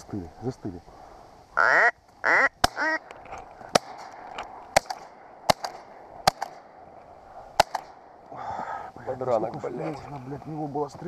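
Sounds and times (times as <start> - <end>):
duck quack: 1.6 - 3.0
shotgun shots: 2.6 - 3.0, 3.7 - 6.8, 7.6 - 8.1.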